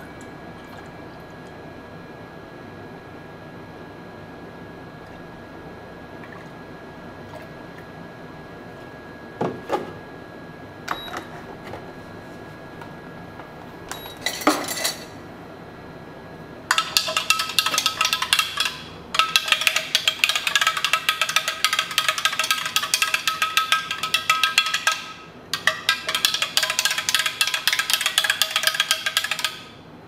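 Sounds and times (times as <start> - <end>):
faint steady hum: 0.0 - 30.0
spoon stirring in a glass: 16.7 - 29.7.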